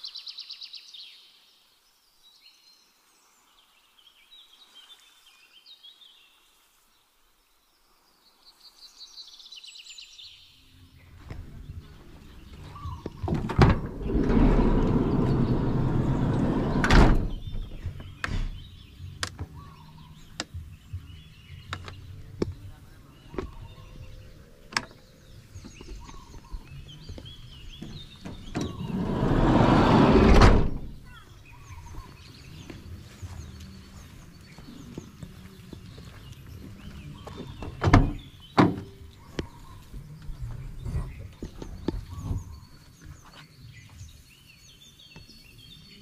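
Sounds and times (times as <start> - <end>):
sliding van door rumbling: 11.8 - 18.6, 27.7 - 31.0
door thudding shut: 12.8 - 18.6, 27.8 - 31.0, 37.6 - 39.0.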